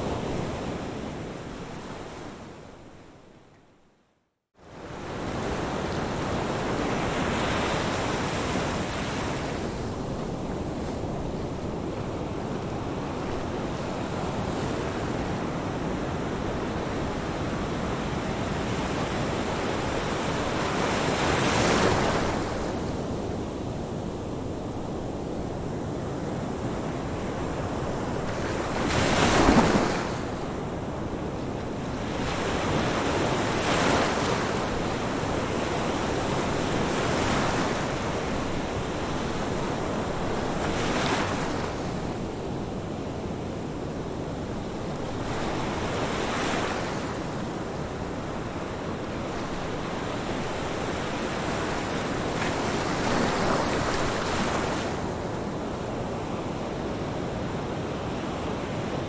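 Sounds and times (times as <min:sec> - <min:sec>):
ocean waves breaking: 0:28.0 - 0:30.7, 0:45.1 - 0:55.3.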